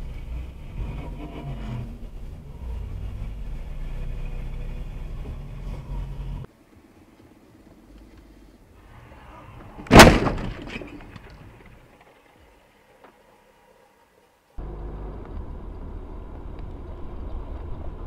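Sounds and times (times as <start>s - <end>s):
road rumble inside car: 0.0s - 6.5s, 14.6s - 18.0s
short rattle: 9.7s - 12.3s
car collision bang: 9.8s - 11.3s.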